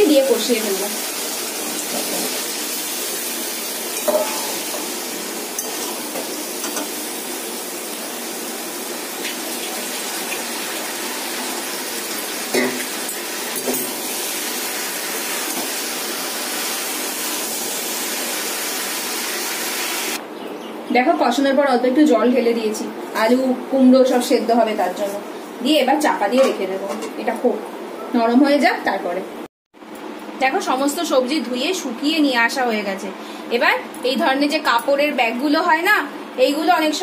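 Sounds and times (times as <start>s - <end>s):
vegetables sizzling in oil: 0.0s - 20.2s.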